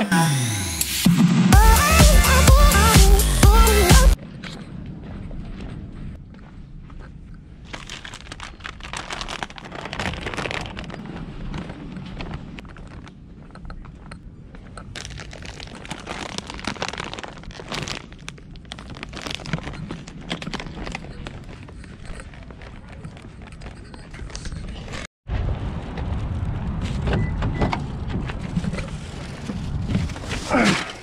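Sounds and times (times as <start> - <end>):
plastic bag crinkling: 7.6 - 13.1, 14.9 - 24.4.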